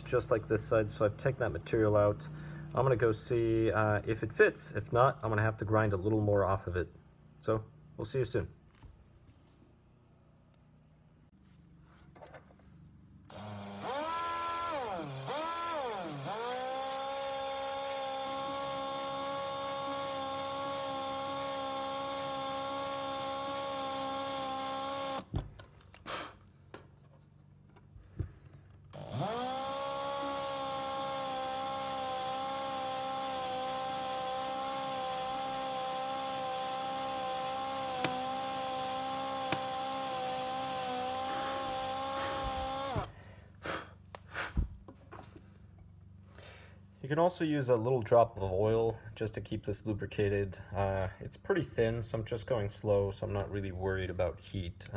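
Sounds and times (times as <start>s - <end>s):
electric drill boring through metal: 13.3s - 25.3s, 29.0s - 43.1s.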